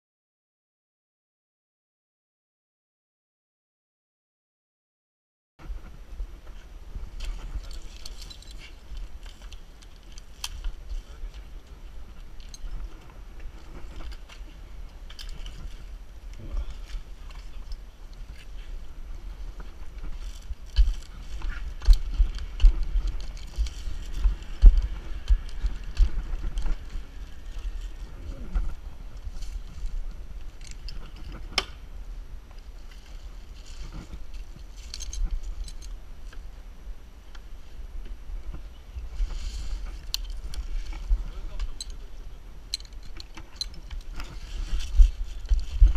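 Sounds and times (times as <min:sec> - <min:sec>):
low rumble of jostled camera: 0:05.7 - 0:36.5
dry palm fronds rustling: 0:05.7 - 0:45.9
metal climbing hardware clinking: 0:07.2 - 0:11.4, 0:12.1 - 0:15.9, 0:34.5 - 0:36.4, 0:39.9 - 0:42.0, 0:42.7 - 0:45.9
climbing gear scraping on palm trunk: 0:42.8 - 0:45.9.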